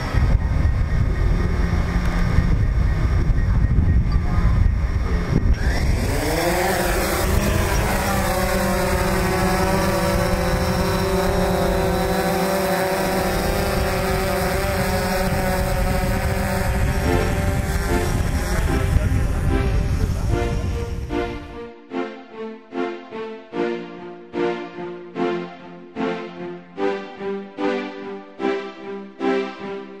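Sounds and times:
drone propellers buzzing: 0:00.0 - 0:21.7.

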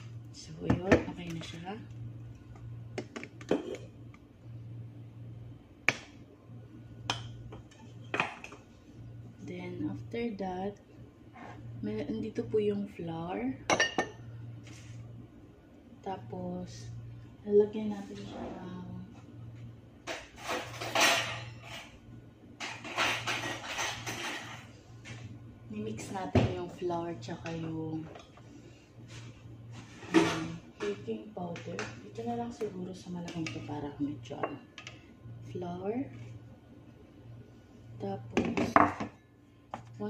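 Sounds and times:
steady low hum: 0:00.0 - 0:40.0
kitchen things clicking and knocking: 0:22.6 - 0:24.7.

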